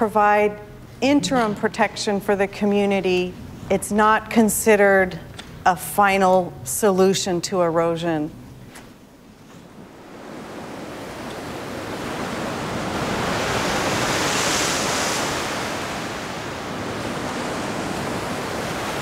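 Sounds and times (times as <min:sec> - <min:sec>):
wind: 0:08.1 - 0:19.0
ocean surf breaking: 0:09.6 - 0:19.0.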